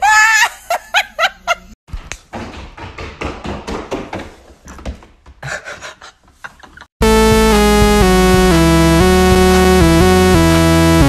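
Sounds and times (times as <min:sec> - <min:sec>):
goat hooves tapping on wooden floor: 0:01.9 - 0:05.4.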